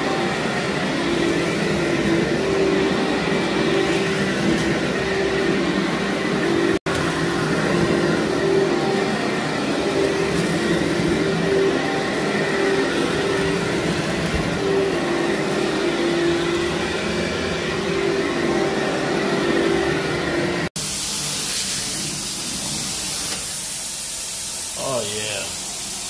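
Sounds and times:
vacuum cleaner running: 0.0s - 26.0s
steady hissy noise: 23.7s - 25.8s.

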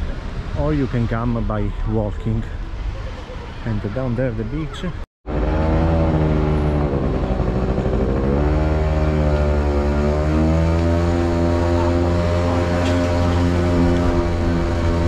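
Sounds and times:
motorbike engine running: 5.3s - 15.0s.

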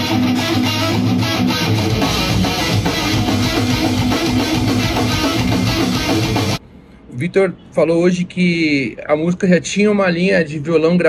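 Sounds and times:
electric guitar strumming: 0.0s - 6.6s
rock song: 0.0s - 6.6s.

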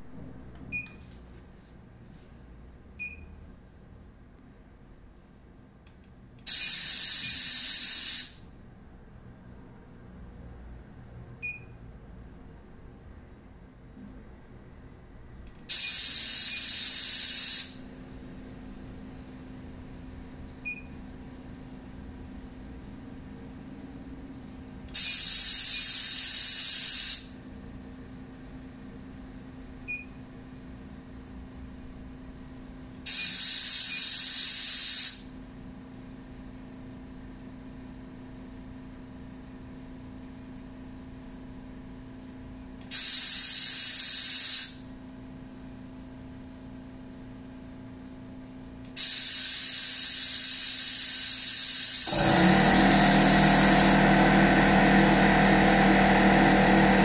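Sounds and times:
low steady hum: 0.0s - 6.4s
air gun hissing: 6.5s - 8.4s, 15.7s - 17.8s, 24.9s - 27.4s, 33.1s - 35.3s, 42.9s - 44.8s, 49.0s - 54.0s.

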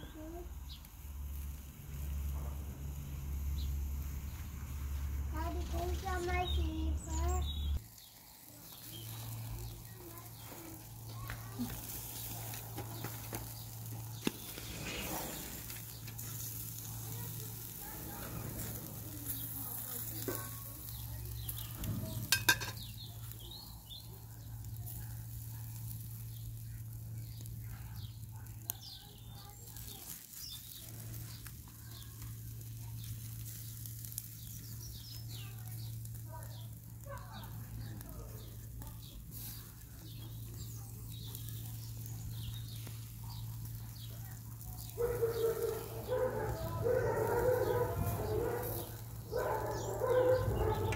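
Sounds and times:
meat sizzling on grill: 0.0s - 50.9s
small birds chirping: 0.0s - 50.9s
metal tongs clicking on grate: 22.3s - 22.9s.

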